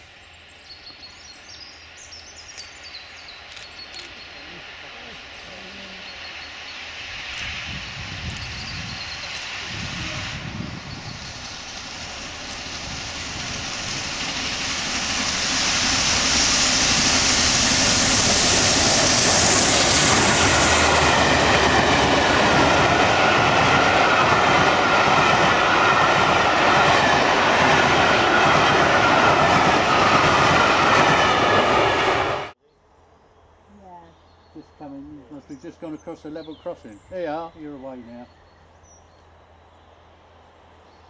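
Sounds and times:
steam locomotive hissing rush: 0:01.9 - 0:32.6, 0:34.8 - 0:38.3.

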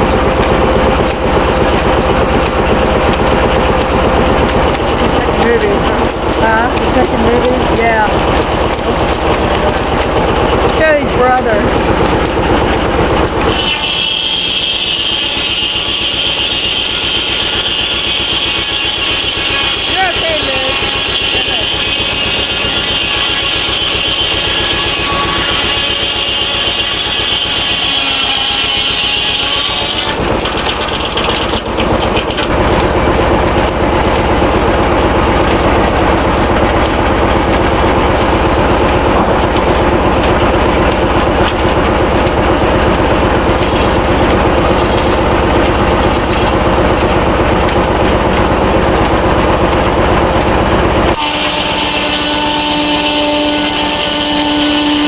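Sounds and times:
saw blade spinning with whine: 0:00.0 - 0:55.0
saw blade cutting log: 0:13.3 - 0:32.5.

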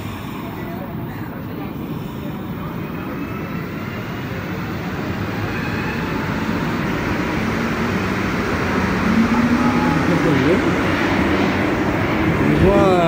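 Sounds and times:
metro train rumble: 0:00.0 - 0:13.0.

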